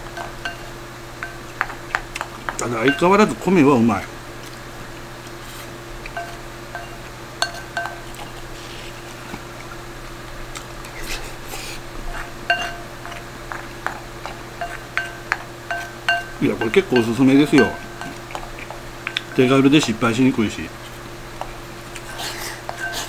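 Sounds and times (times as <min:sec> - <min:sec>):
utensils clinking against bowl: 0:00.0 - 0:03.6, 0:06.0 - 0:08.4, 0:12.1 - 0:23.0.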